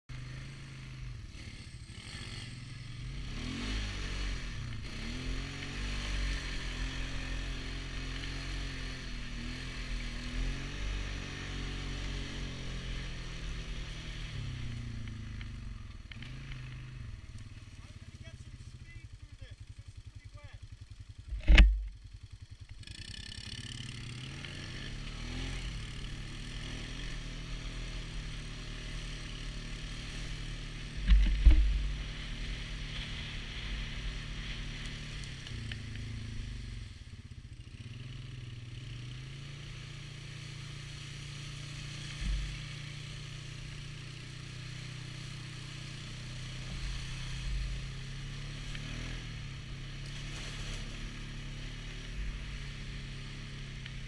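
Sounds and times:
atv engine running: 0.1s - 54.0s.

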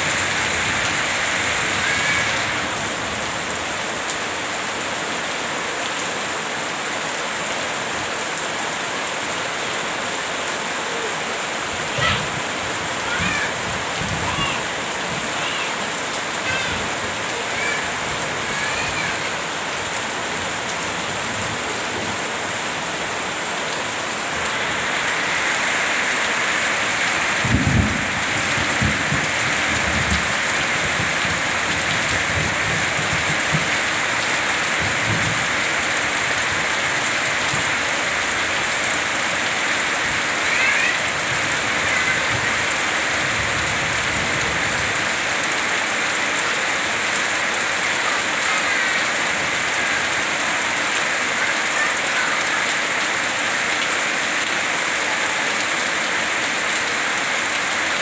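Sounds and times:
heavy rain falling: 0.0s - 58.0s
water running off eaves: 0.0s - 58.0s
thunder rumbling: 27.3s - 31.4s.

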